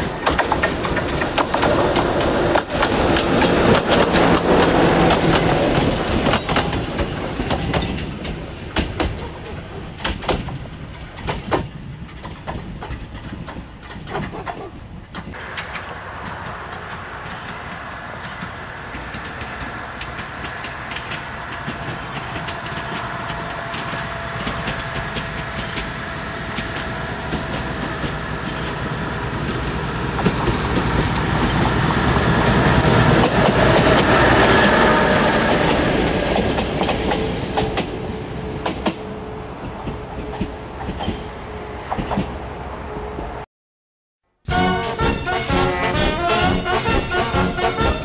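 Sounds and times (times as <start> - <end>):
diesel locomotive engine passing: 0.0 - 11.2, 15.0 - 43.4, 44.5 - 48.0
wheels clicking over rail joints: 0.0 - 34.8.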